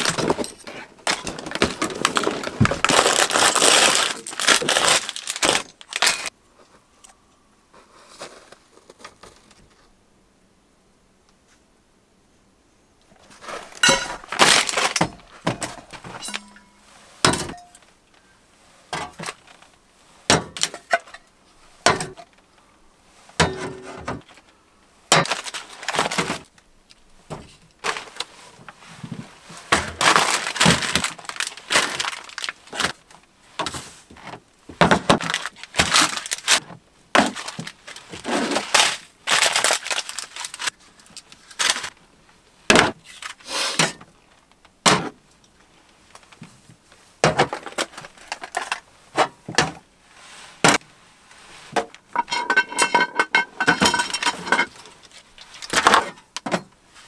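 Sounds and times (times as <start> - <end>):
plastic wrappers crinkling: 0.0 - 6.4, 13.2 - 16.4, 25.1 - 26.7, 27.7 - 28.4, 29.8 - 33.3, 35.0 - 42.1, 43.0 - 43.4, 47.5 - 48.9, 53.6 - 56.4
metal cans clinking on a table: 52.2 - 54.8.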